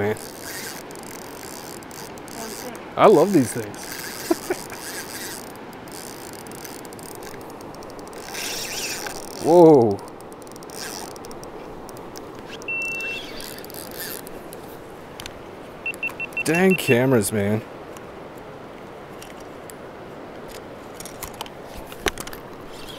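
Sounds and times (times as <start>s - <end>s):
river running over stones: 0.0s - 22.9s
camera beep: 12.6s - 13.7s, 15.8s - 17.0s.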